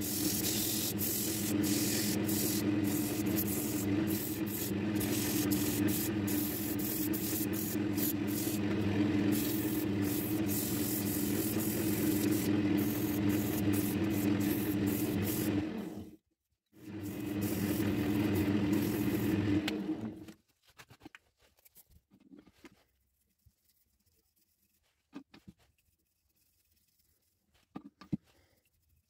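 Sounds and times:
sandpaper hissing on spinning wood: 0.0s - 16.0s, 16.9s - 19.5s
wood lathe motor humming: 0.0s - 16.1s, 16.8s - 20.2s.

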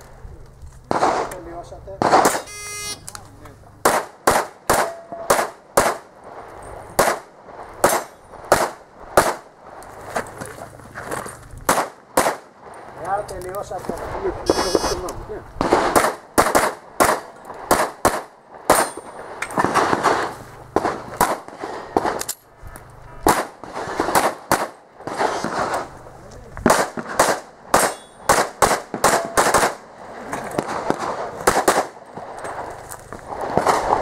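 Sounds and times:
pistol shots echoing: 2.0s - 2.5s, 3.8s - 6.2s, 6.8s - 9.5s, 11.7s - 12.7s, 15.6s - 22.2s, 23.2s - 25.8s, 26.6s - 30.0s, 30.6s - 32.3s.

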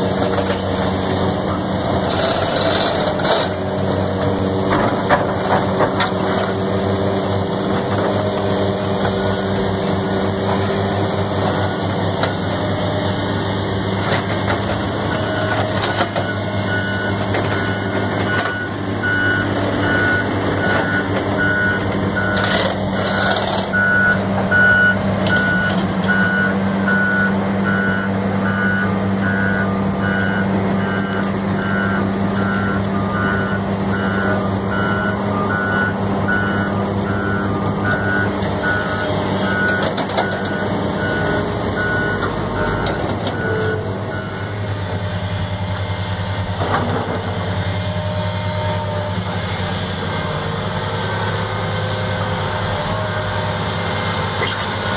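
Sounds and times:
heavy diesel machinery droning: 0.0s - 54.9s
backup alarm beeping: 15.1s - 44.8s.

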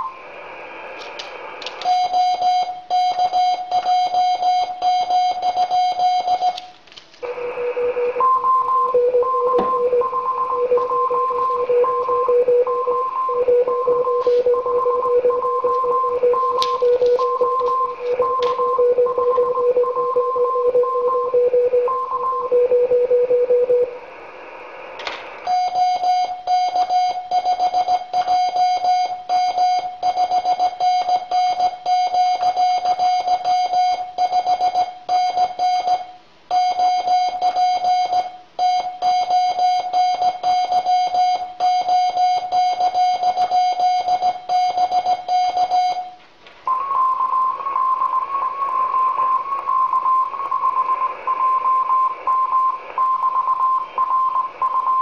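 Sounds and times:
radio hiss: 0.0s - 1.9s, 7.2s - 8.2s, 13.8s - 18.8s, 23.9s - 25.6s, 46.6s - 54.8s
lower morse signal: 0.0s - 55.0s
high morse code tone: 1.8s - 23.9s, 25.4s - 55.0s.

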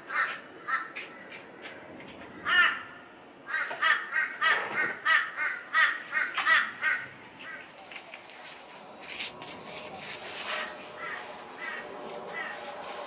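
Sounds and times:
bird cawing harshly: 0.1s - 1.4s, 2.4s - 7.7s, 10.5s - 12.6s.

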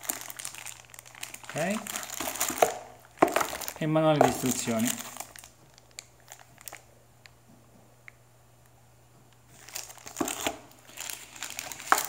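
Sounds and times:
plastic wrapping crinkling: 0.0s - 6.9s, 9.5s - 12.0s.

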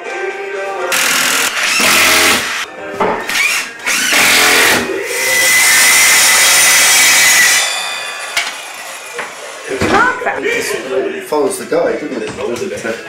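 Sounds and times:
cordless drill whining: 0.9s - 2.6s.

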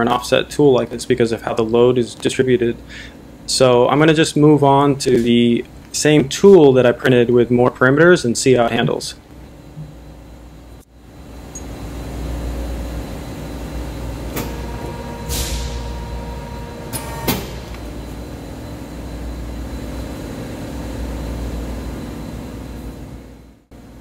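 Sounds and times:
steady whine: 0.0s - 24.0s
press brake humming: 11.4s - 20.6s.

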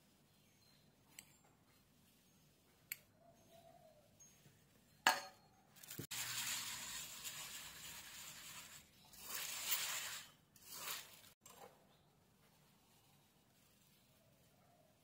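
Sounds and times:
rice grains scraping on steel: 5.8s - 11.4s.

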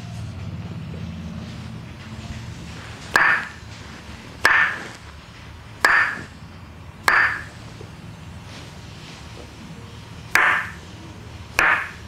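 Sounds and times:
wooden mallet knocking on wood: 3.2s - 3.6s, 4.4s - 4.8s, 5.8s - 6.3s, 7.1s - 7.5s, 10.4s - 10.8s, 11.6s - 12.0s.

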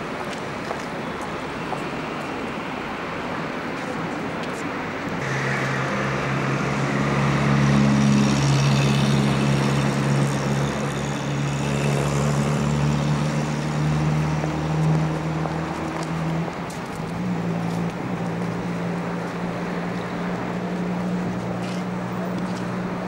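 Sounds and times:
outdoor street noise: 0.0s - 23.0s
low engine drone: 5.2s - 15.6s.

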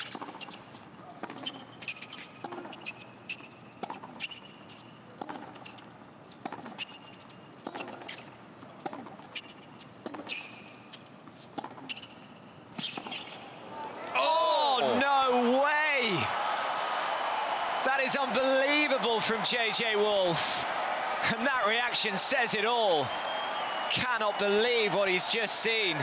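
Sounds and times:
sneakers squeaking on court: 0.0s - 13.6s
tennis ball bouncing: 1.2s - 13.4s
racket striking tennis ball: 5.2s - 5.8s.

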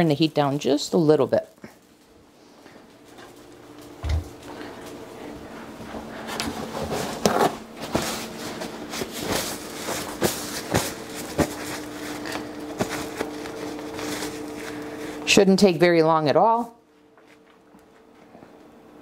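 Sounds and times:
paper towel rustling and clicking: 6.1s - 15.1s.

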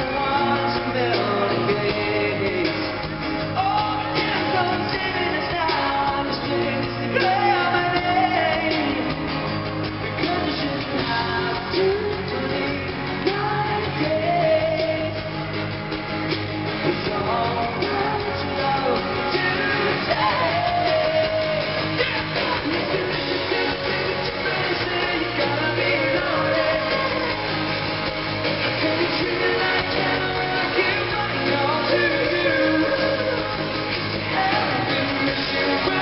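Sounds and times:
live pop-rock band: 0.0s - 36.0s
person singing lead vocals: 0.0s - 36.0s.

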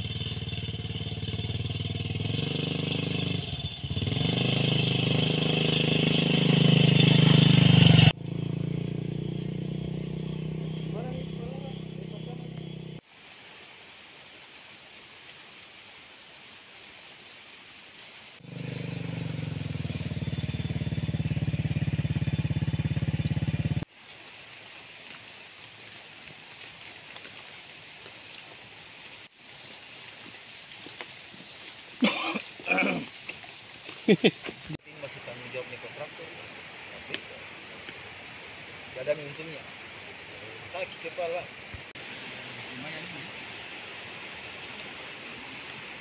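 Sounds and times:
motorcycle engine idling: 0.0s - 13.0s, 18.4s - 23.8s
faint outdoor background: 0.0s - 46.0s.

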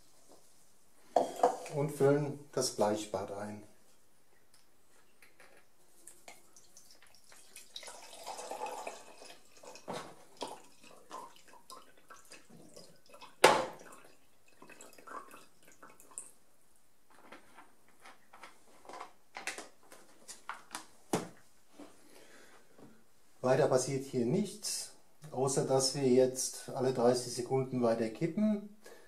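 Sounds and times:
liquid trickling and dripping: 5.4s - 16.4s.

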